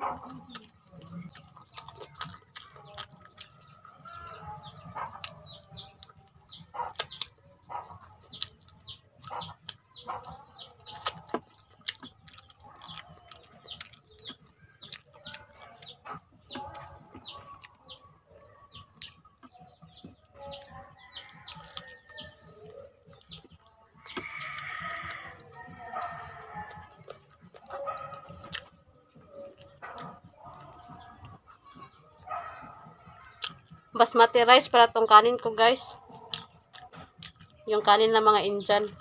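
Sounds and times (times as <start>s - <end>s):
birds chirping: 0.0s - 39.0s
chickens clucking: 0.0s - 39.0s
person chewing and sucking: 0.3s - 3.7s, 6.9s - 7.4s, 10.9s - 15.4s.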